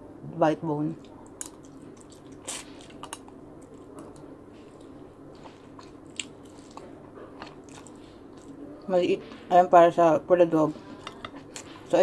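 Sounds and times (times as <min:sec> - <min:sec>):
quiet chewing: 0:01.0 - 0:09.4.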